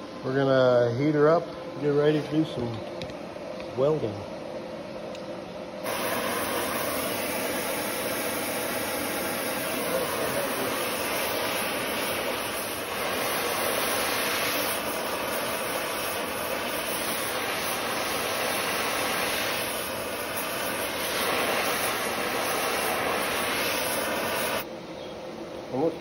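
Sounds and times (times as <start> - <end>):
torch flame hissing: 5.8 - 24.7.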